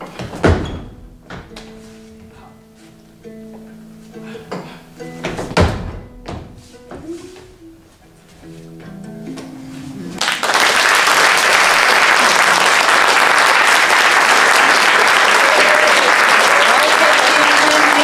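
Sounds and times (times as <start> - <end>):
audience applause: 10.2 - 18.0.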